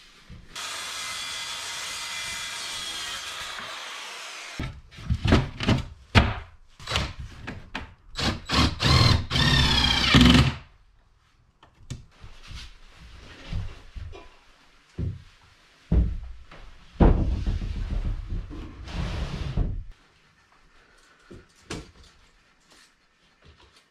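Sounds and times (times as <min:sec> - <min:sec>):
cordless drill driving screws: 0:08.2 - 0:10.6.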